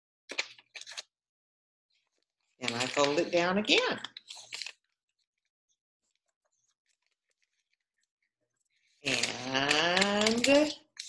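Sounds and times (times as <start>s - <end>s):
paper rustling and folding: 0.3s - 1.1s, 1.9s - 11.0s
woman's voice: 2.6s - 4.0s, 9.0s - 10.8s.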